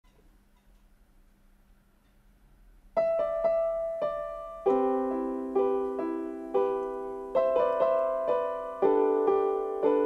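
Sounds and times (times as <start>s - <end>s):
slow piano chords: 3.0s - 10.0s.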